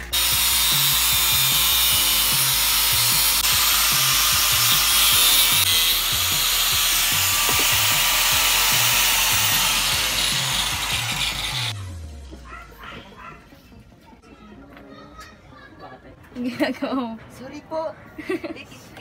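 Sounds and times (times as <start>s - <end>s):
angle grinder cutting metal: 0.0s - 11.8s
background music: 0.0s - 14.0s.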